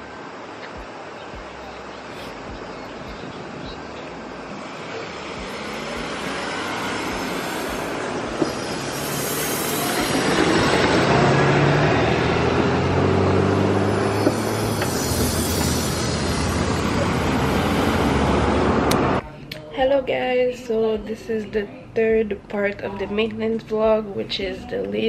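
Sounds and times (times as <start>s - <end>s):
large vehicle engine running: 0.0s - 19.2s
street traffic: 0.0s - 25.0s.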